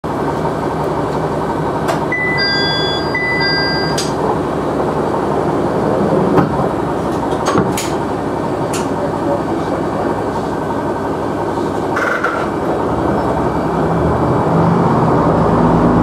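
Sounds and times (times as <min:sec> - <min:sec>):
diesel railcar idling: 0:00.0 - 0:16.0
electronic beep: 0:02.1 - 0:04.1.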